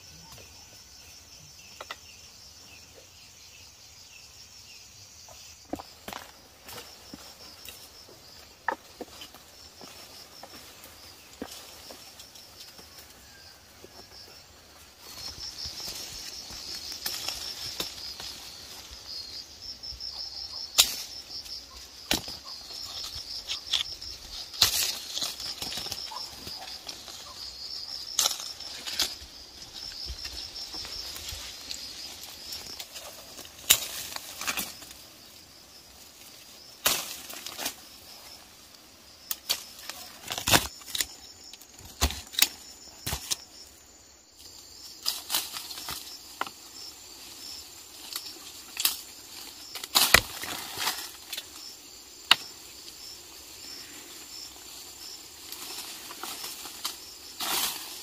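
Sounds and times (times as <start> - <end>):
insects chirring: 0.0 - 58.0
sharp snaps and knocks: 20.7 - 21.1, 32.6 - 34.9, 36.8 - 37.8, 39.3 - 43.4, 49.7 - 51.5.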